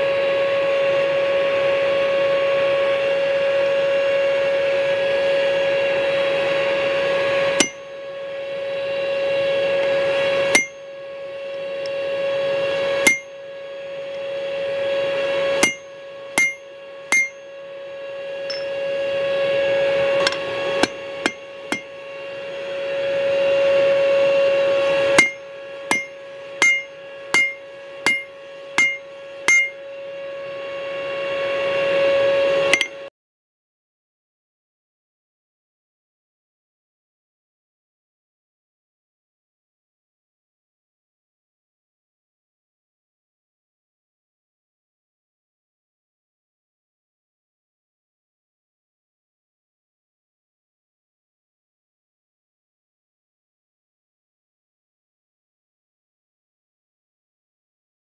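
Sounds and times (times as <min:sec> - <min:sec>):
hammer striking steel on anvil: 0:07.6 - 0:07.9, 0:10.5 - 0:10.9, 0:13.0 - 0:13.4, 0:15.6 - 0:17.5, 0:18.5 - 0:18.8, 0:20.2 - 0:21.9, 0:25.2 - 0:29.8, 0:32.7 - 0:33.0
steady ringing tone: 0:07.6 - 0:30.6.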